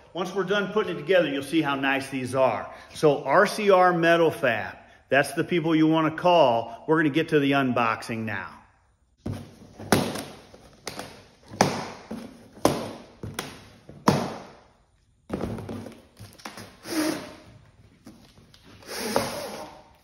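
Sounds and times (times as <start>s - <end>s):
straps snapping against cardboard: 9.3s - 14.6s.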